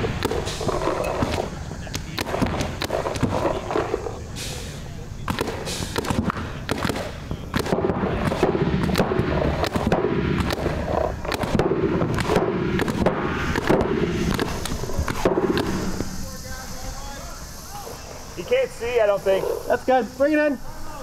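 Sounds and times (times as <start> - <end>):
paintball markers firing: 0.0 - 4.2, 5.2 - 16.2.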